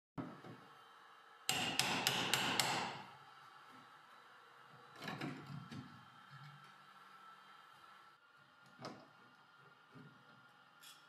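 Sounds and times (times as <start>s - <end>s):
hammer striking steel tool: 1.5s - 3.1s.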